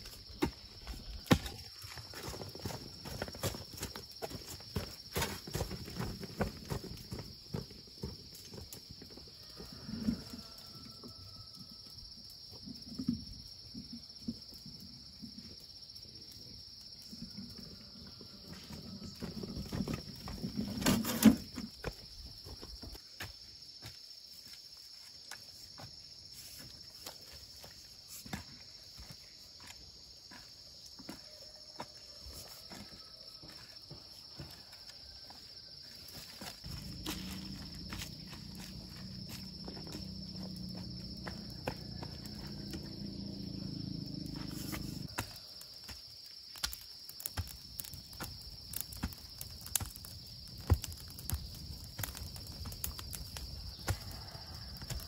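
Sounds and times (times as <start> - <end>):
footsteps on dirt path: 0.0 - 8.9, 25.4 - 46.1
insects buzzing: 0.0 - 55.0
wheelbarrow knocking: 36.7 - 43.4.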